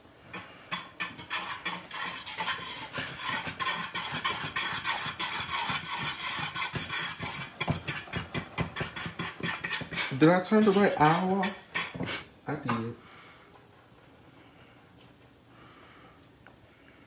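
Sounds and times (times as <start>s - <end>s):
metal spoon scraping saucepan: 0.3s - 12.9s.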